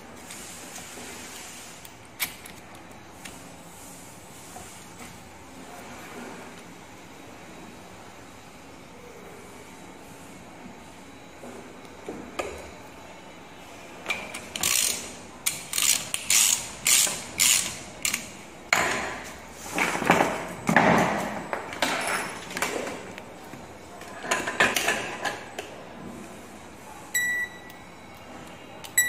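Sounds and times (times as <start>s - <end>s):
ratchet wrench clicking: 14.5s - 18.3s.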